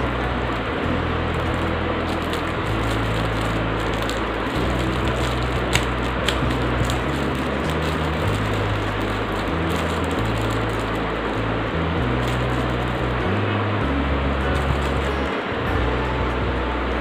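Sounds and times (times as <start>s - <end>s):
electric fans humming: 0.0s - 17.0s
plastic package crinkling: 1.4s - 11.3s, 12.1s - 13.2s.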